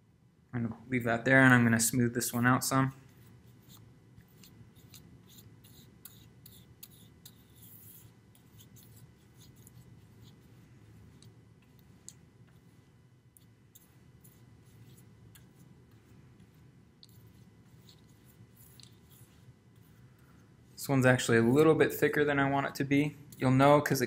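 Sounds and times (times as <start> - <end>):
paintbrush swishing on board: 3.0 - 20.8.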